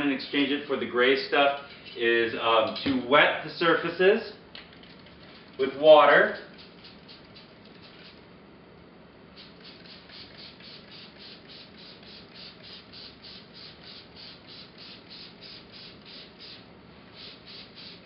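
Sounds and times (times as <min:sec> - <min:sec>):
spray bottle hissing spurts: 0:06.3 - 0:08.2, 0:09.4 - 0:18.0.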